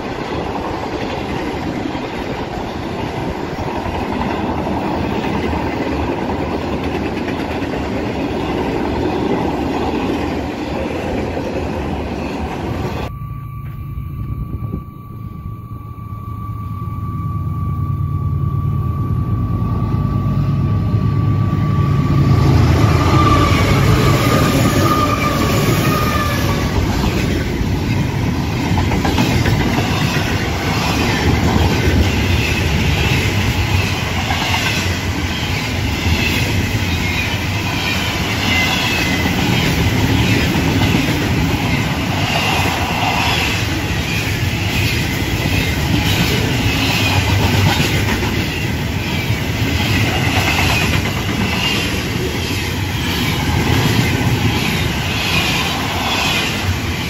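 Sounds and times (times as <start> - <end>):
train wheels clattering on rails: 0.0 - 12.8, 22.2 - 57.0
diesel locomotive engine rumble: 0.0 - 57.0.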